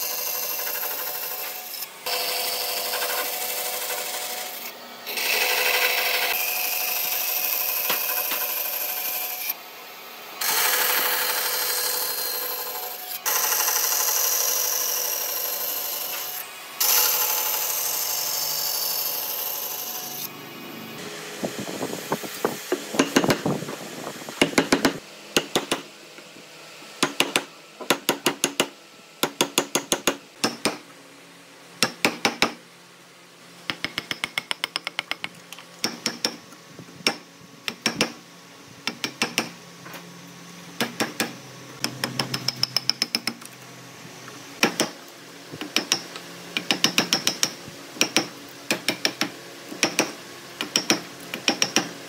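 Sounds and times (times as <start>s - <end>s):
hammer striking wood chisel: 22.7s - 23.5s, 24.4s - 25.9s, 27.0s - 30.8s, 31.8s - 32.6s, 33.7s - 36.4s, 37.0s - 38.2s, 38.8s - 39.6s, 40.8s - 43.4s, 44.6s - 45.0s, 45.6s - 52.0s.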